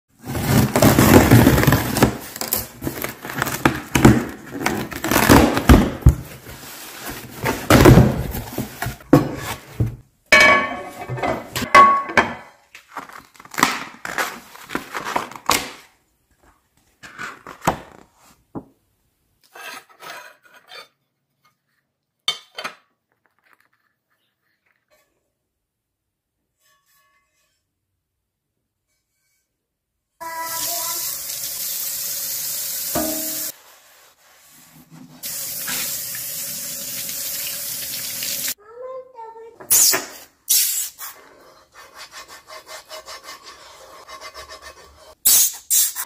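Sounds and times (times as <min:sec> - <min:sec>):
cardboard and packaging rustling: 0:00.1 - 0:10.1, 0:12.6 - 0:18.6.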